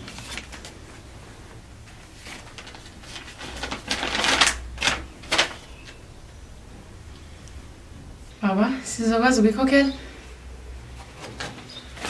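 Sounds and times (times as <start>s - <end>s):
paper rustling and crackling: 0.0s - 6.0s, 11.0s - 12.0s.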